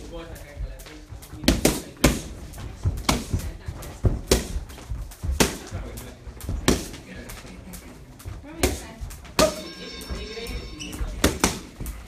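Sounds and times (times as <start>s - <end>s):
punches smacking focus mitts: 1.3s - 7.0s.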